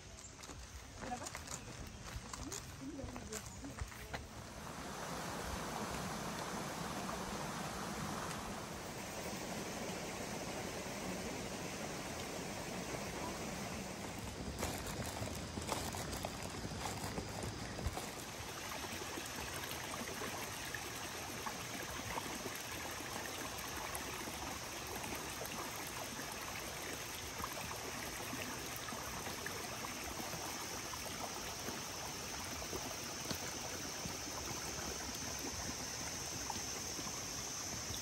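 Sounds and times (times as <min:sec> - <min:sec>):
stream water running: 0:00.0 - 0:38.0.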